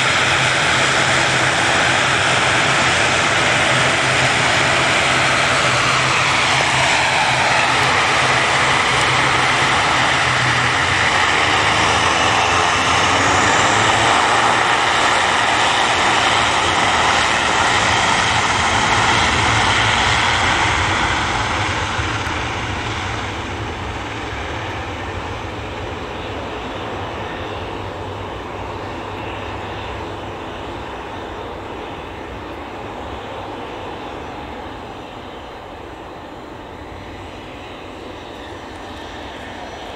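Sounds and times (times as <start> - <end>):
turboprop airliner taking off: 0.0 - 39.9.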